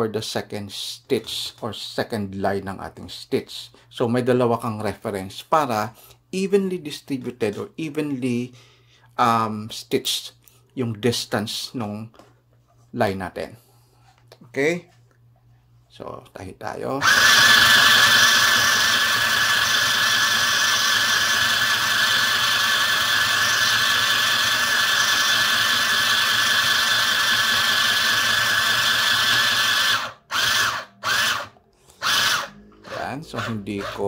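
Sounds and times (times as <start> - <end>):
sewing machine running: 17.0 - 34.0.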